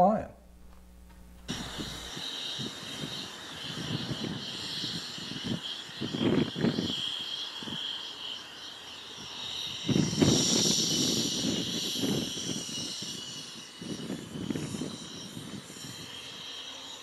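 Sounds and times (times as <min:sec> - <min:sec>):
electric fan jet whining: 0:00.0 - 0:17.0
low rumble gusts: 0:01.4 - 0:02.2.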